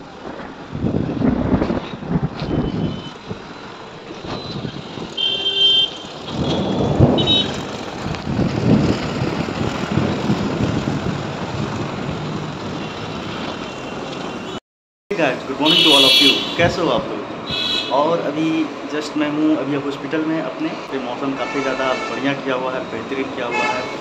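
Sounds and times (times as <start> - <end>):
rain: 0.0 - 5.2, 6.0 - 14.4
thunder rumbling: 0.0 - 5.2, 6.1 - 14.0
traffic noise: 0.0 - 24.0.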